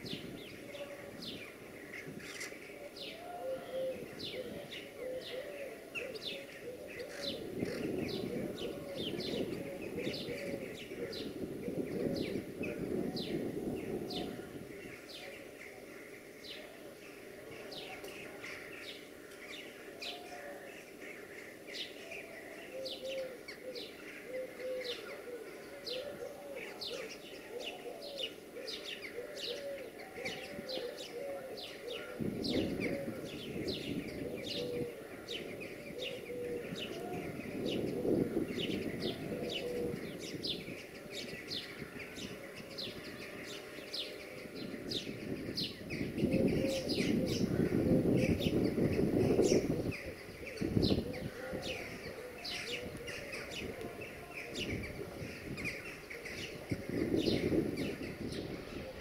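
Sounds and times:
small birds chirping: 0:00.0 - 0:59.0
pigeon cooing: 0:02.7 - 0:14.5, 0:22.6 - 0:44.5, 0:46.0 - 0:59.0.

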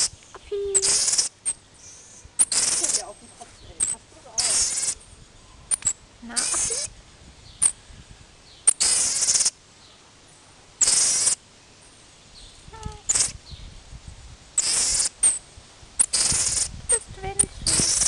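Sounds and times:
marmoset sharp chirps: 0:00.0 - 0:05.1, 0:05.7 - 0:06.9, 0:07.5 - 0:07.8, 0:08.6 - 0:09.5, 0:10.8 - 0:11.4, 0:13.0 - 0:13.5, 0:14.6 - 0:15.4, 0:16.0 - 0:18.0
marmoset hissy high calls: 0:00.8 - 0:03.2, 0:03.8 - 0:05.1, 0:05.7 - 0:06.9, 0:08.7 - 0:09.6, 0:10.8 - 0:11.4, 0:12.9 - 0:13.4, 0:14.6 - 0:15.4, 0:16.0 - 0:17.0, 0:17.6 - 0:18.0.

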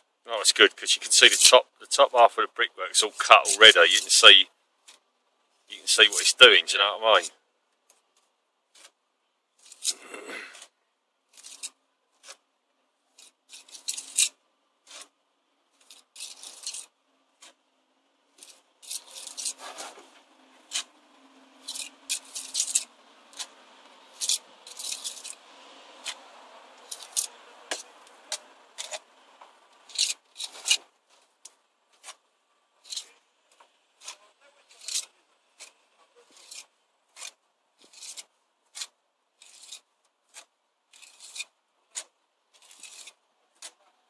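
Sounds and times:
trowel scraping mortar and brick: 0:03.0 - 0:04.3, 0:09.6 - 0:12.5, 0:13.2 - 0:15.2, 0:15.8 - 0:17.6, 0:18.4 - 0:21.0, 0:21.6 - 0:29.1, 0:29.8 - 0:31.2, 0:31.9 - 0:32.2, 0:32.8 - 0:33.2, 0:34.0 - 0:43.8.

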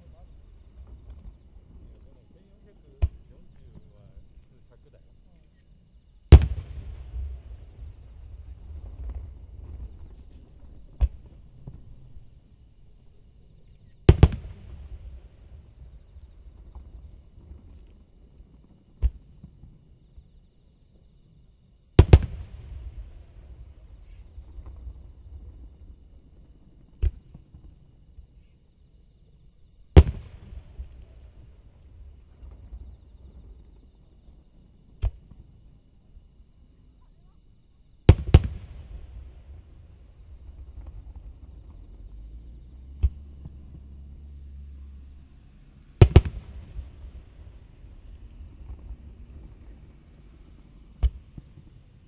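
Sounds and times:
fireworks booming with echo: 0:00.0 - 0:04.0, 0:06.3 - 0:12.2, 0:14.0 - 0:17.8, 0:22.0 - 0:25.8, 0:30.0 - 0:33.8, 0:38.1 - 0:42.0, 0:46.0 - 0:49.7
quiet firework launch thump: 0:00.8 - 0:04.2, 0:06.3 - 0:12.2, 0:13.7 - 0:18.0, 0:18.6 - 0:19.8, 0:22.0 - 0:25.7, 0:26.9 - 0:27.8, 0:30.0 - 0:33.6, 0:34.9 - 0:35.4, 0:38.1 - 0:42.0, 0:42.9 - 0:43.9, 0:46.0 - 0:49.7, 0:50.9 - 0:51.8.

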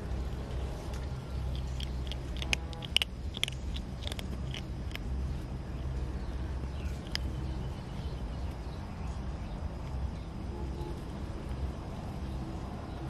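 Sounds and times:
kitten crunching kibble: 0:00.0 - 0:05.9, 0:06.6 - 0:08.0.

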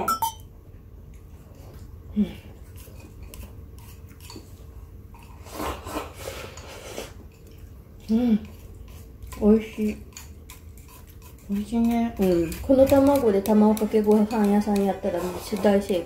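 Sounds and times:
utensils scraping a bowl: 0:02.6 - 0:04.6, 0:05.2 - 0:16.0.

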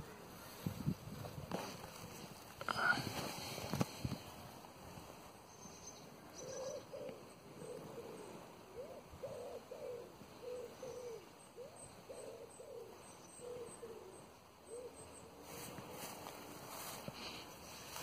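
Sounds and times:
pigeon cooing: 0:06.3 - 0:15.7.

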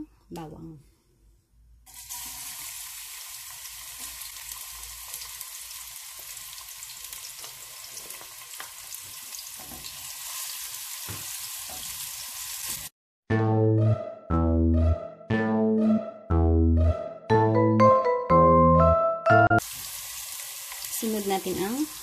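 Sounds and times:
garlic sizzling in oil: 0:01.9 - 0:12.9, 0:19.6 - 0:22.0.

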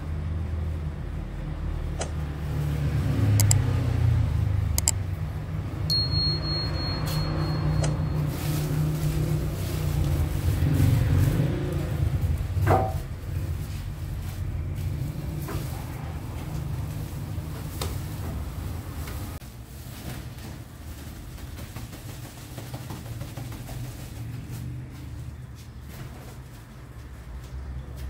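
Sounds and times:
sharp clicks: 0:02.0 - 0:02.2, 0:03.4 - 0:03.6, 0:04.7 - 0:05.0.

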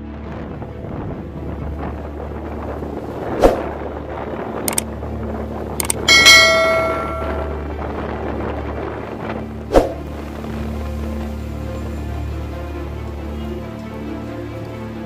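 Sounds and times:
low background drone: 0:00.0 - 0:15.0
notification bell ding: 0:06.1 - 0:07.7.

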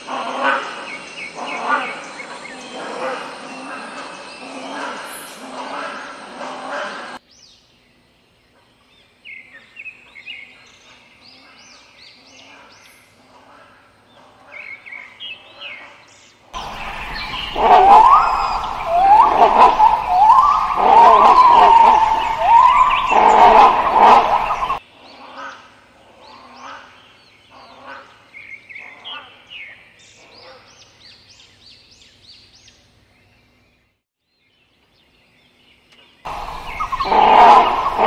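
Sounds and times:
faint high chirping: 0:16.6 - 0:24.8, 0:36.3 - 0:38.0
hornbills calling harshly: 0:16.6 - 0:24.8, 0:36.3 - 0:38.0.

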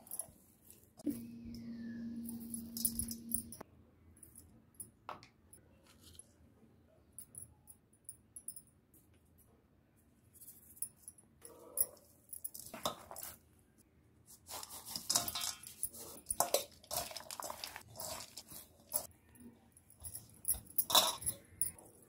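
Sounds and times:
hand squishing food: 0:14.3 - 0:19.1.

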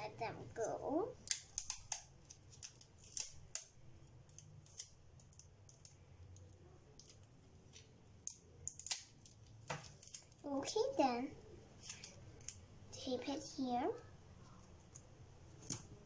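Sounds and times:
paper and tape crinkling: 0:00.6 - 0:10.8, 0:11.8 - 0:12.6.

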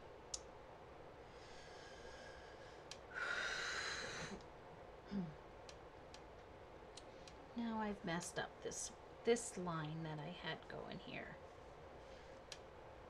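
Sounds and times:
person sighing: 0:05.1 - 0:05.4.

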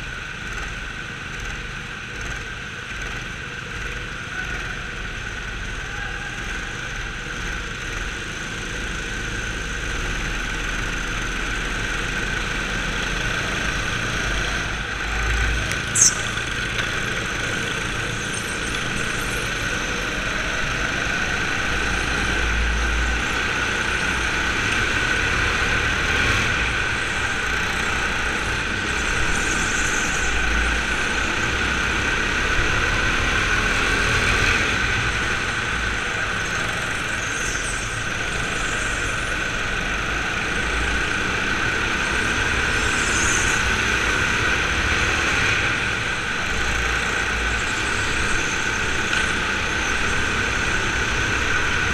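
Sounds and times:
go-kart motor whine: 0:00.0 - 0:51.9
tyre and chassis noise: 0:00.0 - 0:51.9.

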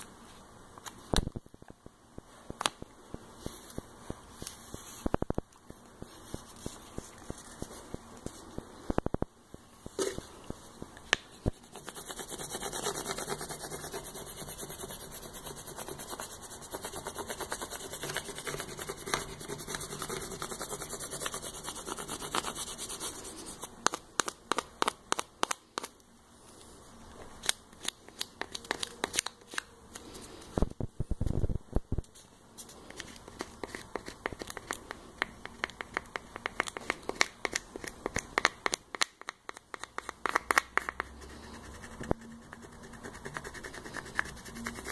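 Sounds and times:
plastic scraper rubbing on paper: 0:11.5 - 0:23.7.

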